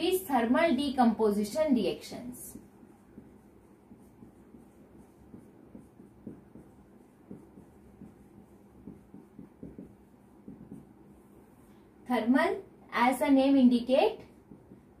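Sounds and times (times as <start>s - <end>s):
marker writing on whiteboard: 1.3s - 11.7s, 13.5s - 15.0s.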